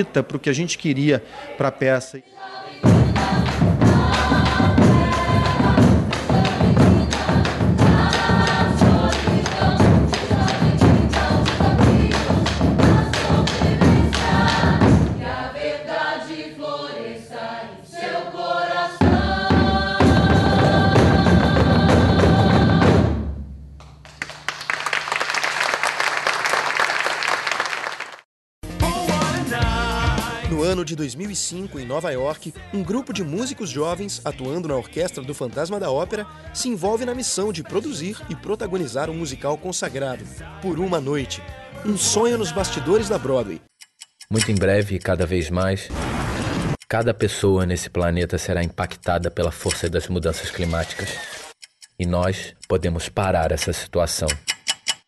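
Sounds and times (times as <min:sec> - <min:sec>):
choir singing: 0:02.2 - 0:23.1, 0:40.5 - 0:43.6
steady drumming: 0:02.8 - 0:15.8, 0:18.9 - 0:24.0.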